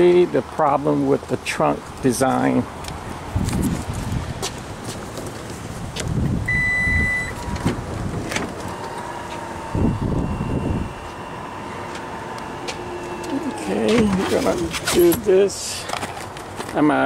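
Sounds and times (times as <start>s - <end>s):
liftgate motor whine: 6.4s - 14.8s
short warning beep: 6.5s - 7.5s, 8.7s - 11.5s.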